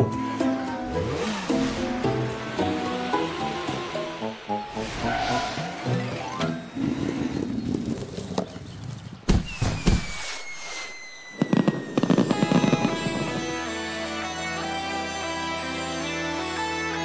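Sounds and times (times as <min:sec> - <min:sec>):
firework bangs and crackling: 0:09.2 - 0:13.6
falling whistle: 0:09.4 - 0:12.8.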